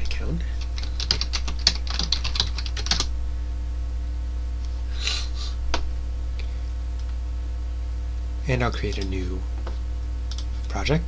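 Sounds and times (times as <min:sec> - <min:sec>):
keyboard typing: 0:00.0 - 0:03.1.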